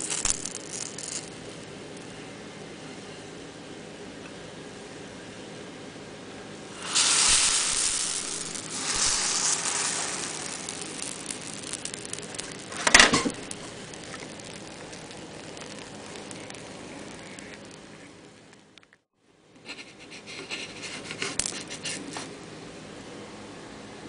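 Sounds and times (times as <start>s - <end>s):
sharp clatter: 0.0s - 1.6s, 6.8s - 17.6s
pancake batter sizzling in pan: 6.7s - 17.9s.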